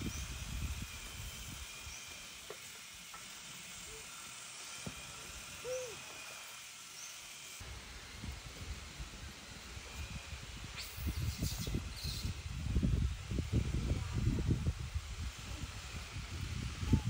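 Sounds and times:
steady hiss: 0.0 - 17.0
hoot-like call: 5.6 - 6.1.

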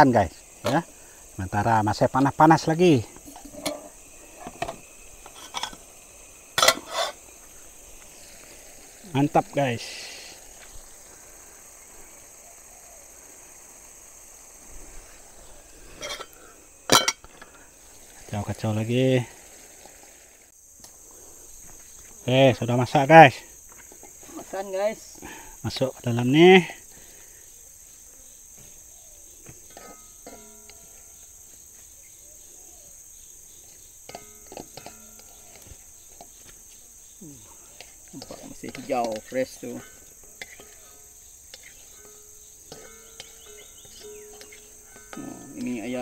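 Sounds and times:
high-pitched insect chirring: 0.0 - 19.6, 20.5 - 46.0
spatula scraping a metal wok: 3.3 - 5.9, 6.6 - 7.3, 15.9 - 16.4, 29.6 - 31.2, 39.8 - 45.4.

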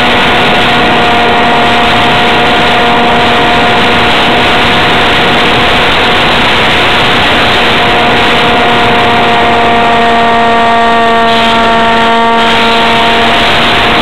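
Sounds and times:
electric motor whine: 0.0 - 14.0
wind rush over camera: 0.0 - 14.0.

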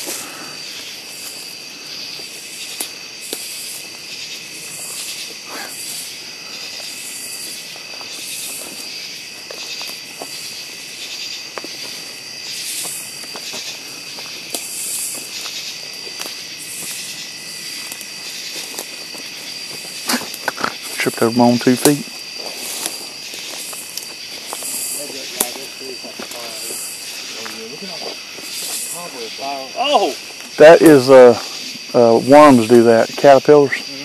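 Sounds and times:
insect buzz: 0.0 - 34.0
insects trilling: 0.0 - 34.0
footsteps on forest floor: 6.5 - 10.8, 11.4 - 21.2, 22.0 - 29.4
twigs snapping: 21.9 - 24.8.

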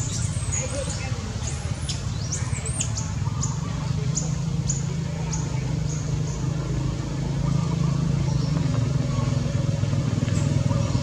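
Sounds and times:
low engine-like hum: 0.0 - 11.0.

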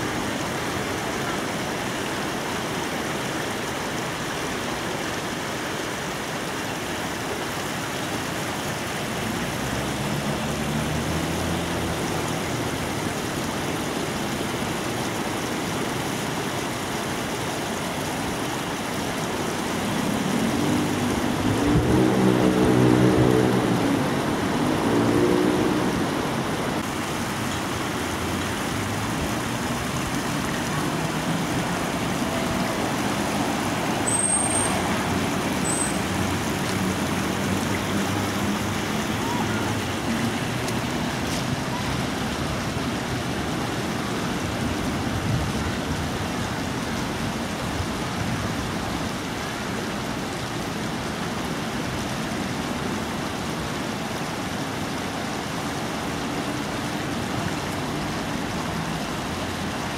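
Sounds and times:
road traffic noise: 0.0 - 59.9.

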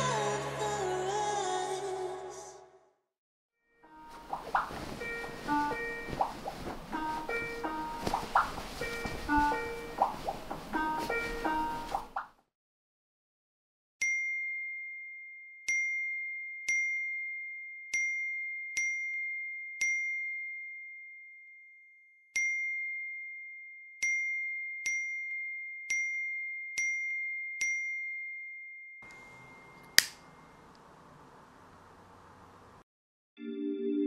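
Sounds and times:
sharp click: 29.8 - 30.8.

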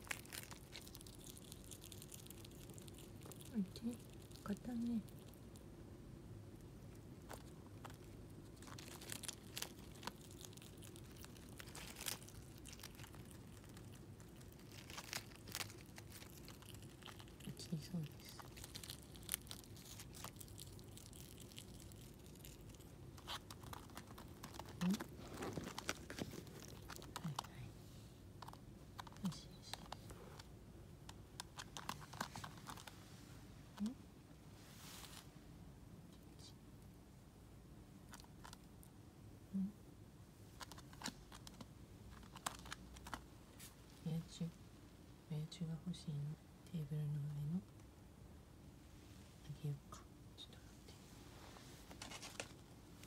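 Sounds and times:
squirrel crunching leaves: 0.0 - 5.7, 6.6 - 27.7, 31.1 - 33.1, 40.5 - 44.3.

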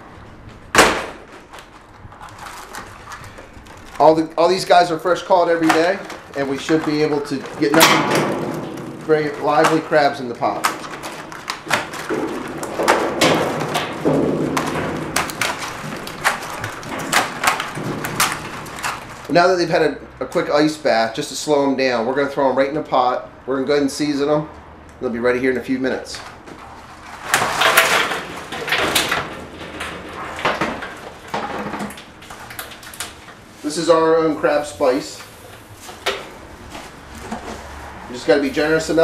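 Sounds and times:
gloved hand rummaging: 1.2 - 19.5
crab shells clattering against metal: 5.3 - 19.3, 27.3 - 33.2
crabs knocking against wooden basket: 10.5 - 19.3.

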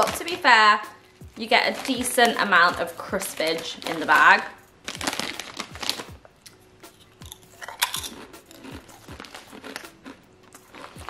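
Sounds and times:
person chewing crisps: 4.9 - 11.0.

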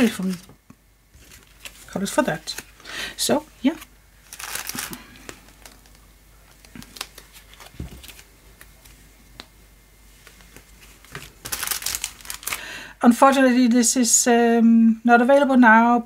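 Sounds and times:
cards rustling: 1.2 - 3.0, 3.6 - 9.0, 10.2 - 12.6
card set down thump: 7.7 - 8.2.

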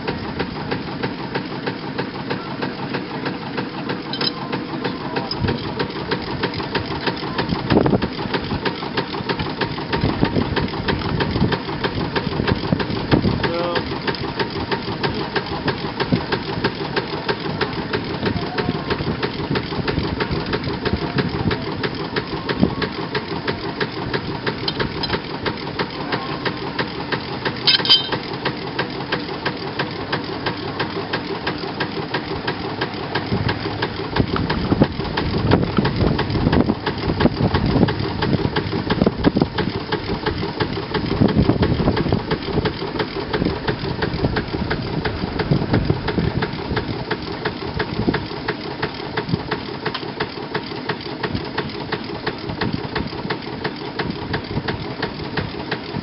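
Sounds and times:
steam engine running: 0.0 - 56.0.

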